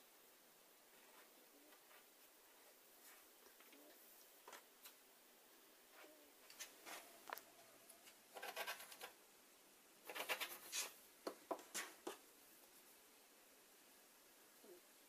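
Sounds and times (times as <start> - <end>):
fabric rubbing on plastic mat: 10.1 - 11.0.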